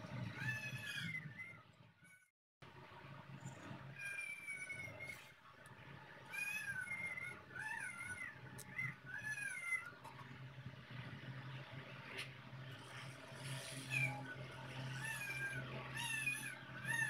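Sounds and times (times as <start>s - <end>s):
high-pitched wavering animal calls: 0.2s - 2.3s, 3.4s - 5.4s, 6.2s - 10.3s, 13.4s - 17.0s
steady low hum: 4.8s - 17.0s.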